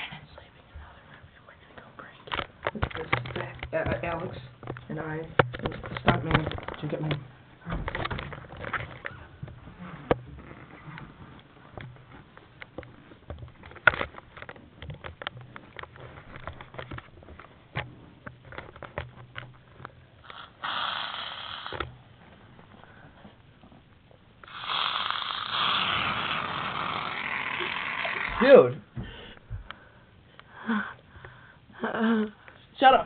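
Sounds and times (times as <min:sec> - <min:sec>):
aerosol can hissing: 0:20.3 - 0:21.8, 0:24.4 - 0:28.4.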